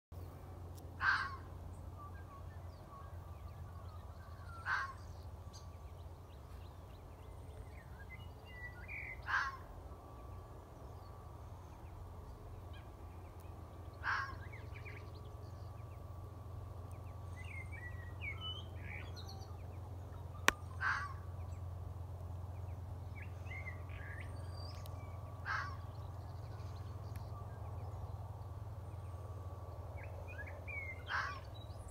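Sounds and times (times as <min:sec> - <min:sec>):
faint birds chirping: 0:00.2 - 0:31.9
fox barking: 0:20.8 - 0:21.2.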